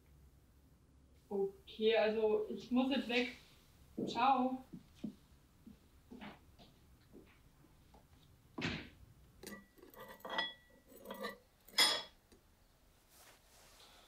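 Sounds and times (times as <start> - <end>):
metal spoon scraping ceramic bowl: 9.4 - 12.2.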